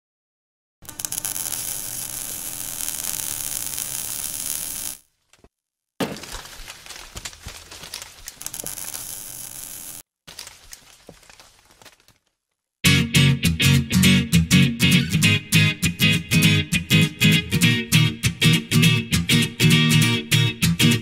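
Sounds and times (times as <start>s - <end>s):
crackling fire and sparks effect: 0.8s - 5.1s, 6.2s - 10.5s.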